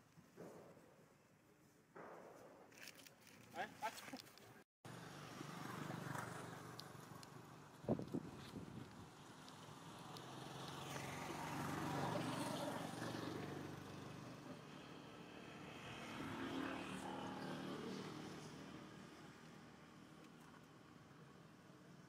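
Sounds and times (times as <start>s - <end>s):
vehicle engine hum passing: 4.9s - 20.9s.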